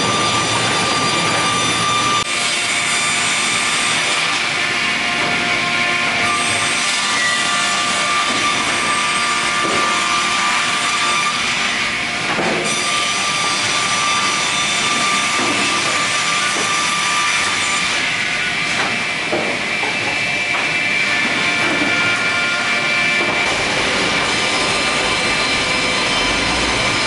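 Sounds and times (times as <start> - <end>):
rip saw whining: 0.0 - 2.3.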